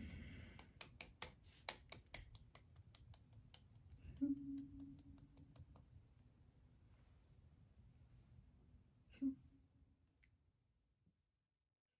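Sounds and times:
woman humming: 4.1 - 5.3.

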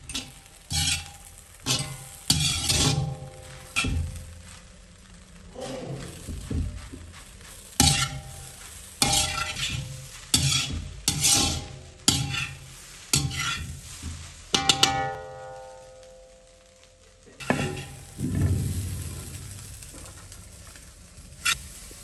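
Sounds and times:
light sizzle: 0.0 - 22.0
metal spatula clanking on pan: 0.1 - 4.2, 7.8 - 8.4, 9.0 - 13.8, 14.5 - 16.0, 17.4 - 19.0
taps on ringing pan: 14.6 - 16.5.

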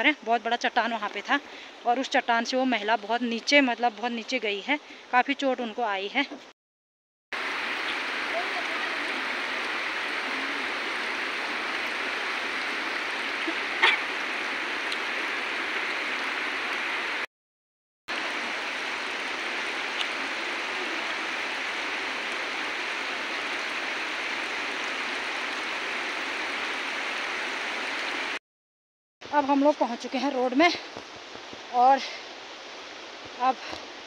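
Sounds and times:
stream flowing over rocks: 7.4 - 17.3, 18.1 - 28.4, 29.5 - 34.0.

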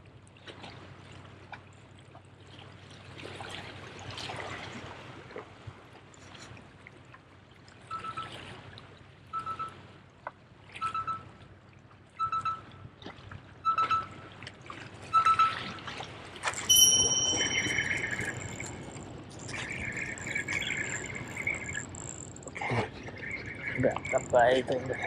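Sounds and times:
fishing reel cranking: 16.4 - 25.0
line hissing off spool: 16.4 - 25.0.

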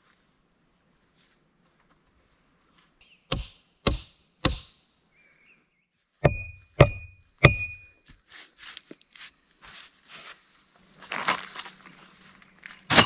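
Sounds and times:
sharp blows on wooden log: 3.3 - 4.8, 6.2 - 7.8
short metallic ring: 6.3 - 8.0
soft scuffing: 8.0 - 12.5.

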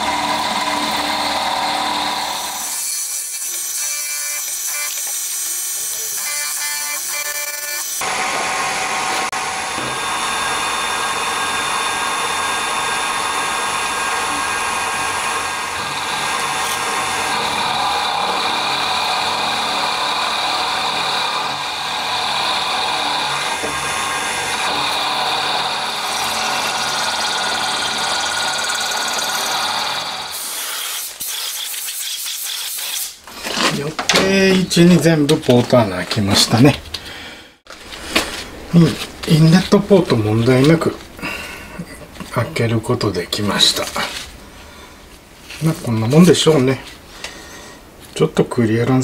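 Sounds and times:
milling machine cutting metal: 0.0 - 31.9.

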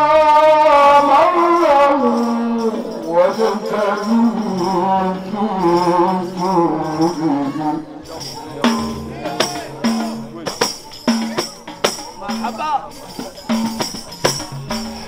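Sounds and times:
man chanting into a microphone: 0.0 - 7.9.

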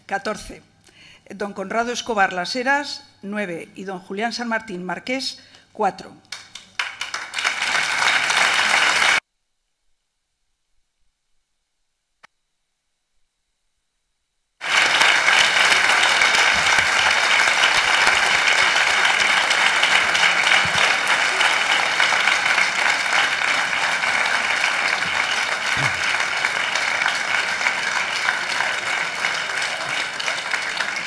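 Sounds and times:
crowd applauding: 6.3 - 9.2, 14.6 - 31.0.

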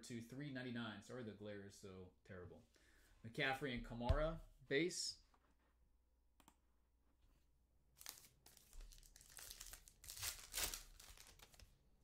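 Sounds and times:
foil wrapper crinkling and tearing: 8.0 - 11.6.

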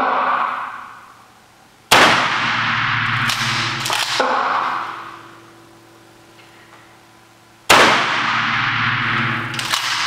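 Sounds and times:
shotgun blasts echoing: 1.9 - 5.2, 7.7 - 10.0.

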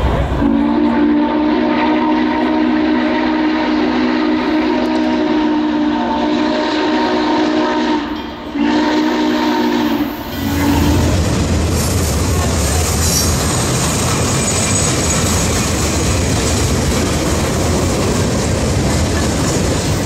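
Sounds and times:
low rumble of passing train: 0.0 - 20.0
steam locomotive whistle: 0.3 - 11.2.

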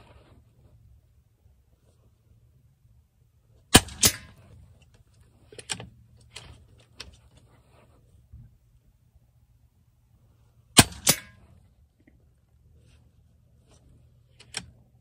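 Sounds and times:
air rifle sharp crack: 3.7 - 4.5, 10.8 - 11.5.

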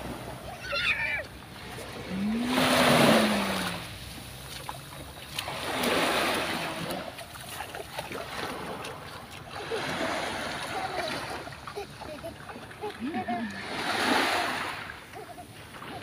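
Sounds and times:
waves washing onto sand: 0.0 - 16.0.

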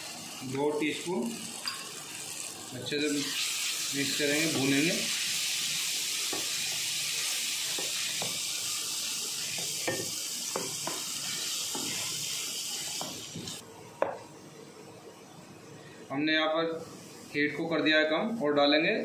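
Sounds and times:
onions sizzling in hot oil: 0.0 - 13.6.

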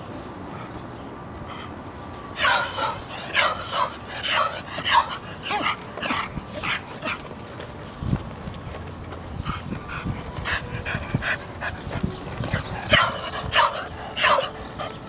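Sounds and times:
dog panting: 2.4 - 7.2, 9.4 - 15.0.

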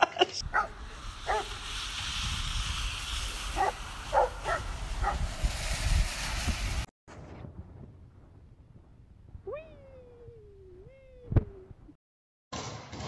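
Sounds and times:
dog barking: 0.5 - 1.5, 3.6 - 5.2.

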